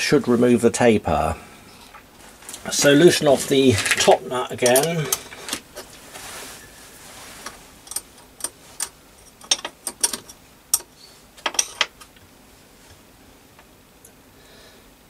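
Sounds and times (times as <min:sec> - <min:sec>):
spanner clicking on metal nut: 0:07.9 - 0:11.9.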